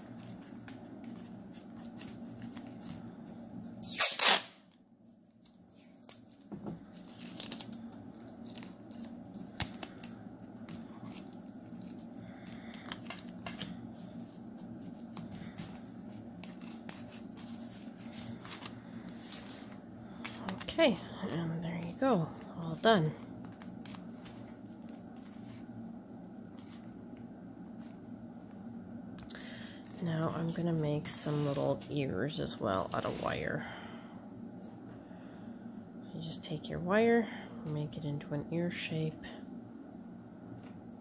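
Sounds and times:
paper and tape crinkling: 0:00.0 - 0:25.7, 0:26.4 - 0:27.0
masking tape tearing: 0:03.8 - 0:04.8.

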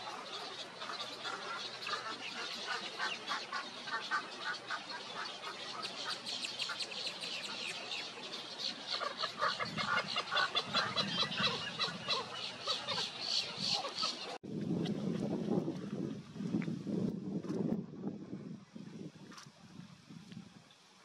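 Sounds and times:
bird chicks clucking: 0:00.0 - 0:14.4
deeper heavy bird calls: 0:00.0 - 0:14.4.

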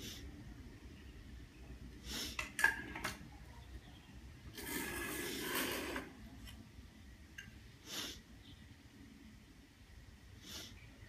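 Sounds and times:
scrape on ceramic tiles: 0:04.5 - 0:06.2.

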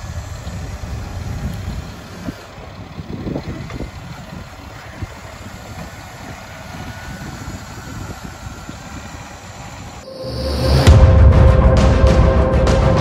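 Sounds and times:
hydraulic pump motor running: 0:00.0 - 0:10.1.

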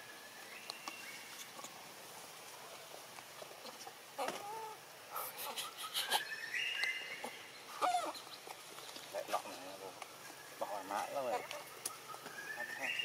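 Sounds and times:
monkeys calling: 0:04.2 - 0:08.3, 0:10.6 - 0:13.0.

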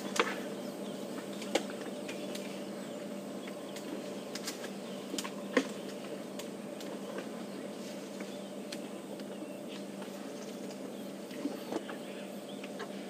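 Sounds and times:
branches snapping and cracking: 0:00.0 - 0:00.4, 0:03.7 - 0:07.3.

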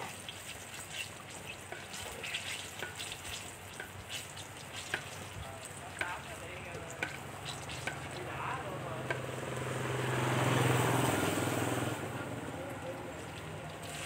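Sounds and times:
deep-frying sizzling oil: 0:00.0 - 0:14.0.

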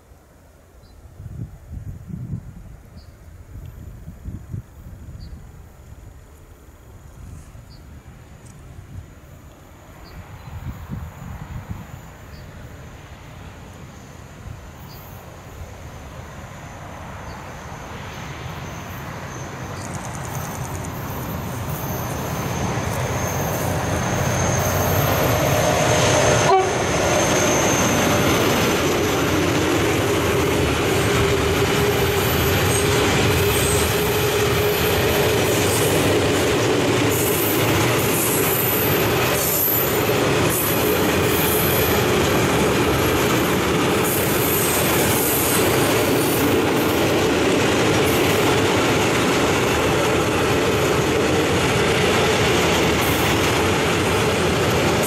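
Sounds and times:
locomotive approaching: 0:08.0 - 0:55.0
steel wheels rumbling on rails: 0:15.9 - 0:55.0
thin high whine: 0:17.5 - 0:47.3.

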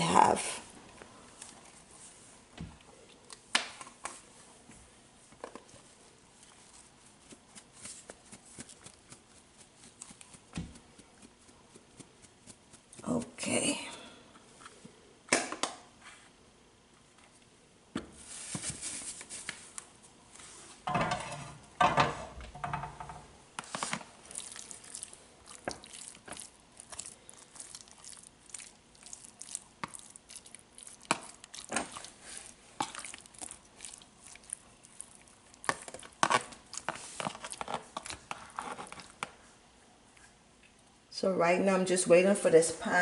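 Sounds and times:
wet squishes of raw chicken: 0:24.2 - 0:38.2.

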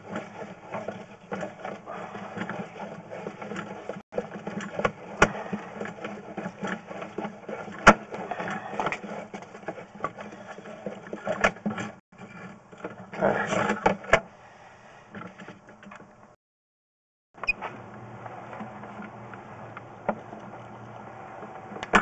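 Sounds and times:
cable rattling mechanical noise: 0:00.0 - 0:14.2.

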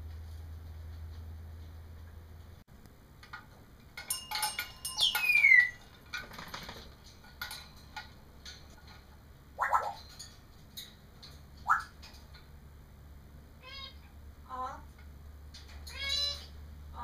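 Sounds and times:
parrot rising call: 0:09.6 - 0:10.0.

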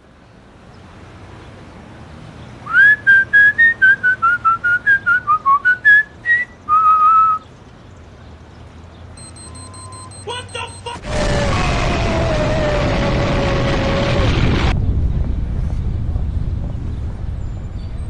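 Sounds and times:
person whistling a tune: 0:02.7 - 0:07.4.

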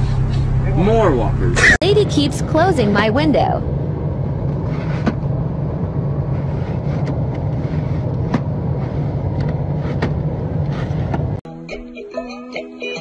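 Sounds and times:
airliner cabin hum: 0:00.0 - 0:11.4
music: 0:11.4 - 0:13.0.

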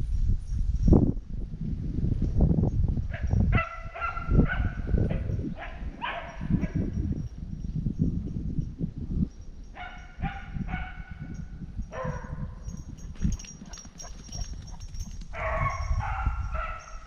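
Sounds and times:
low rumble on microphone: 0:00.0 - 0:09.6
dogs barking and baying: 0:03.1 - 0:07.1, 0:09.7 - 0:17.0.

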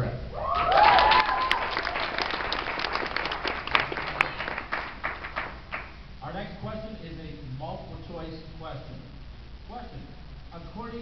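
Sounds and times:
crowd cheering: 0:00.4 - 0:05.7
audience clapping: 0:00.4 - 0:06.0.

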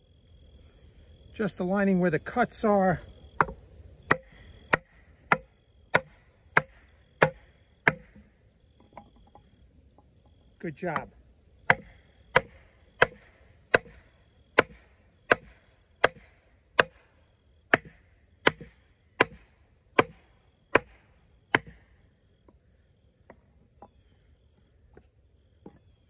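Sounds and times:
crickets chirring: 0:00.0 - 0:26.0
baton knocking on knife spine: 0:06.0 - 0:08.3.

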